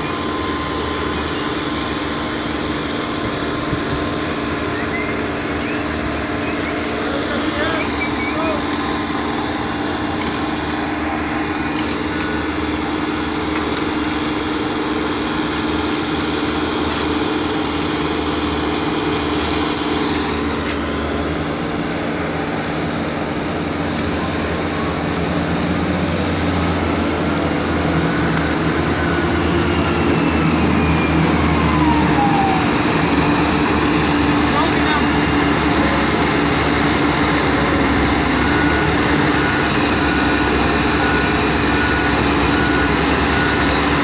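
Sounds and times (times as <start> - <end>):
paver engine running: 0.0 - 44.0
wheel loader engine: 0.0 - 44.0.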